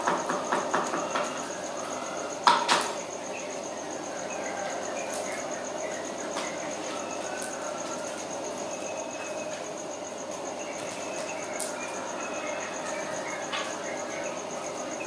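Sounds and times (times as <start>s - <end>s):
sharp knocks: 0.0s - 1.3s
cricket trilling: 0.0s - 15.0s.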